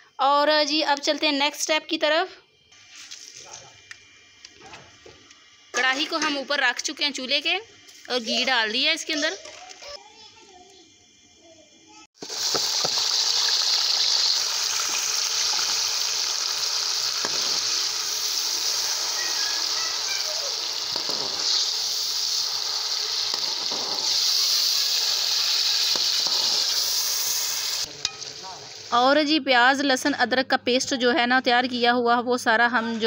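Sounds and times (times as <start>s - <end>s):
onions sizzling in hot fat: 2.8s - 29.4s.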